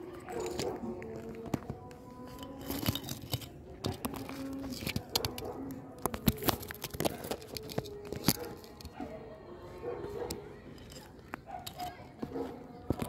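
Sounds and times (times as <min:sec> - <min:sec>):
fingers handling a phone: 0:00.3 - 0:09.0.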